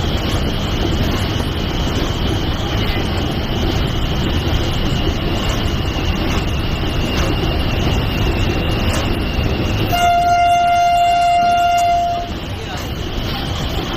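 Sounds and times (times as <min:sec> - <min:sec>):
locomotive low rumble: 0:00.0 - 0:13.9
locomotive horn: 0:09.8 - 0:12.4.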